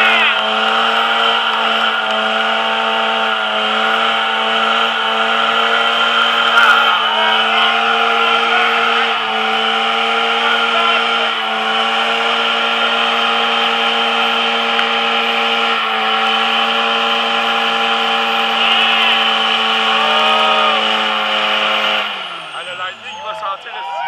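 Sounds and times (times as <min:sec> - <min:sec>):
diesel engine at high revs: 0:00.0 - 0:24.0.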